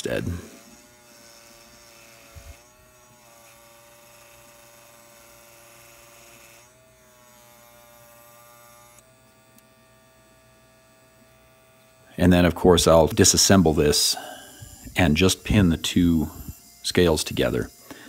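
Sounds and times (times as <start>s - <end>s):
scroll saw motor hum: 0.0s - 18.0s.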